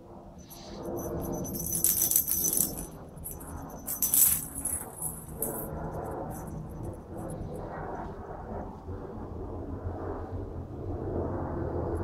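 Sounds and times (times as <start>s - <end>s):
bell ball rolling on concrete: 0.4s - 6.6s.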